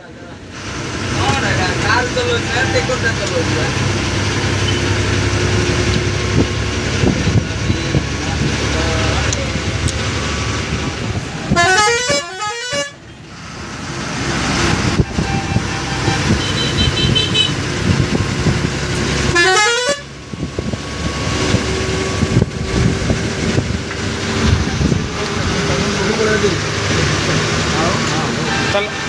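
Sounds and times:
bus engine and road rumble: 0.0 - 29.0
musical air horn: 11.5 - 13.0, 14.9 - 17.6, 19.3 - 20.1.

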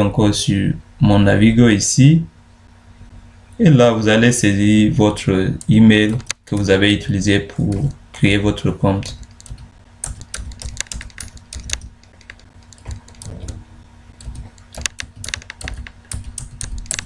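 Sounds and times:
computer keyboard typing: 5.1 - 17.0.

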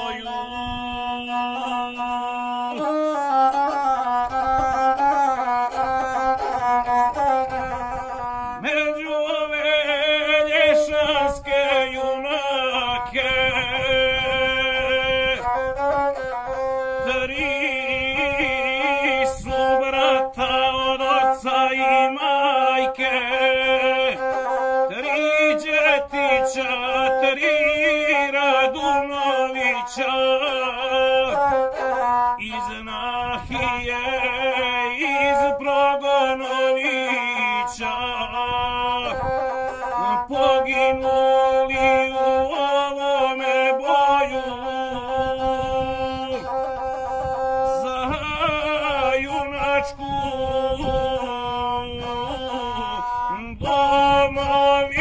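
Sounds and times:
bowed folk fiddle melody: 0.0 - 55.0
man singing: 0.0 - 55.0.

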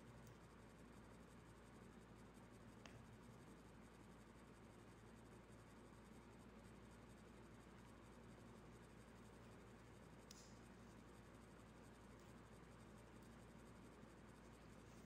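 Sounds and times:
faint click: 10.2 - 10.7.

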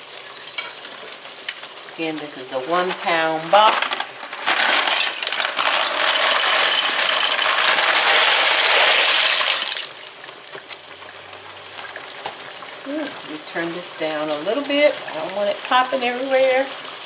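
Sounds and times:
dry pasta clattering into pot: 2.8 - 9.9.

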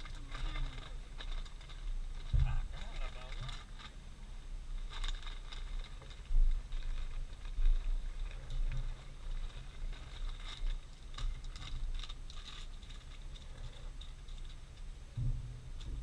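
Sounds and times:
small things being handled: 0.0 - 16.0
wind rumble on microphone: 1.0 - 3.8, 15.0 - 16.0.

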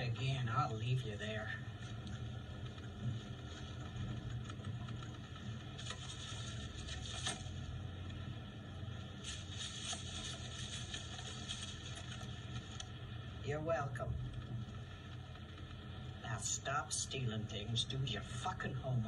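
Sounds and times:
rustling scrapes: 5.7 - 7.7, 9.2 - 12.8.

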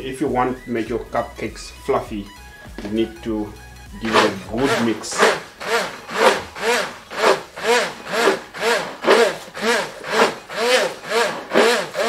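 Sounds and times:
immersion blender running: 4.0 - 12.0.

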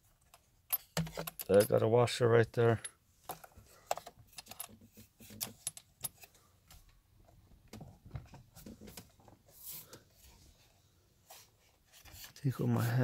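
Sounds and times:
small metal parts clinking: 0.7 - 1.9, 4.3 - 6.3.

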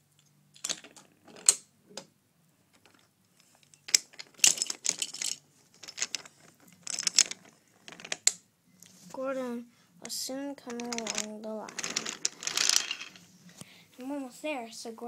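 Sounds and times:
toy train wheels clattering on track: 10.7 - 13.1.

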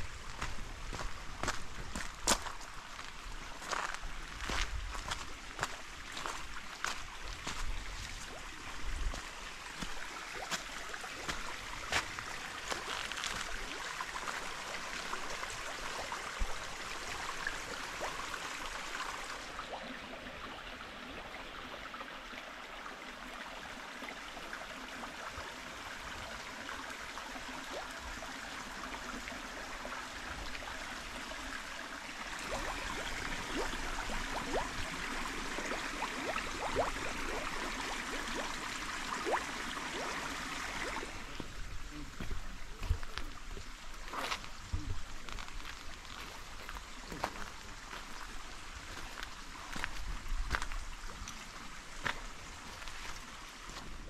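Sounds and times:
water rushing: 0.0 - 54.0.

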